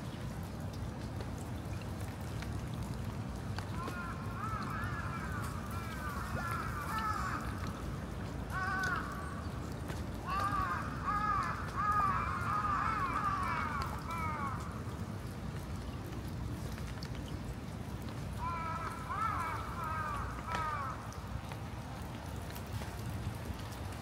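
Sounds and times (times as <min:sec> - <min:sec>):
low background noise: 0:00.0 - 0:24.0
crows cawing: 0:03.7 - 0:07.8, 0:08.5 - 0:09.5, 0:10.2 - 0:14.8, 0:18.4 - 0:21.2.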